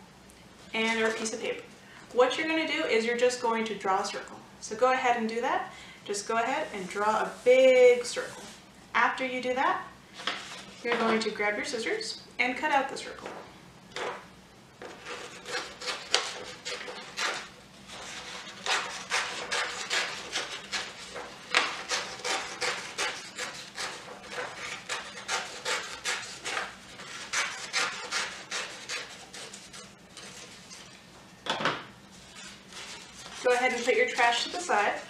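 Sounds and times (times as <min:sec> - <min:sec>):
scissors snipping paper: 0:18.2 - 0:30.4, 0:32.7 - 0:34.6.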